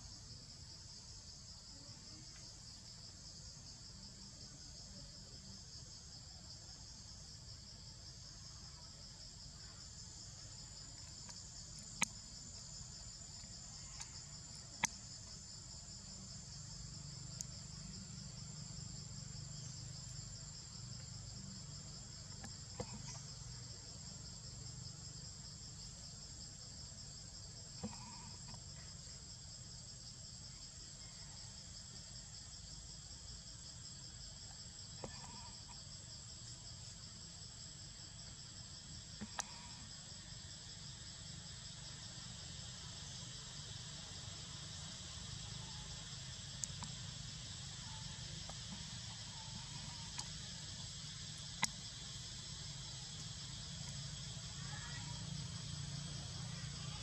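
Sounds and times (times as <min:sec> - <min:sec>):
insects buzzing and whining: 0:00.0 - 0:57.0.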